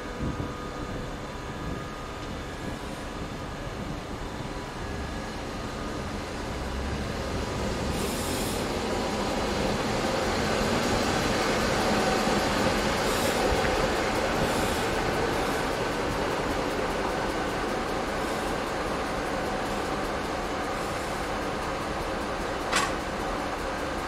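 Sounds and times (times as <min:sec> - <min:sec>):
diesel locomotive engine: 0:00.0 - 0:24.0
train wheels rolling: 0:05.8 - 0:24.0.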